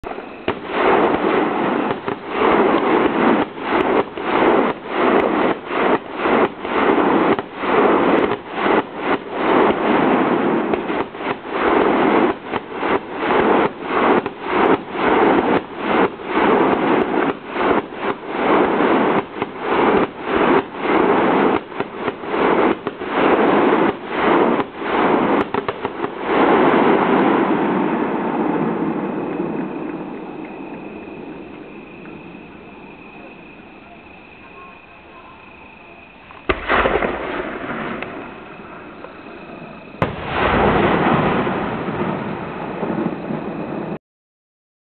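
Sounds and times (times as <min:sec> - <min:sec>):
fireworks crackling and popping: 0:00.0 - 0:34.5, 0:35.7 - 0:44.0.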